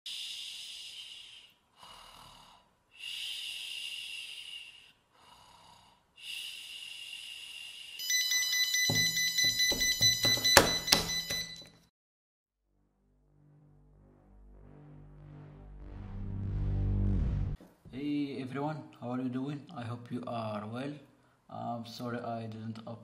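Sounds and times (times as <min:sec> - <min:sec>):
person snoring: 0:00.1 - 0:08.0
alarm clock buzzer: 0:08.0 - 0:11.8
hand slapping a table: 0:08.9 - 0:11.5.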